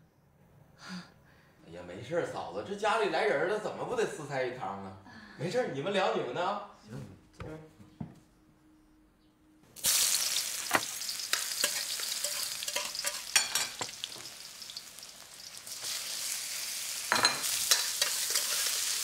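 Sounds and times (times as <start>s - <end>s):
meat sizzling in a wok: 9.8s - 19.0s
metal spatula scraping a pan: 11.2s - 14.0s, 17.2s - 19.0s.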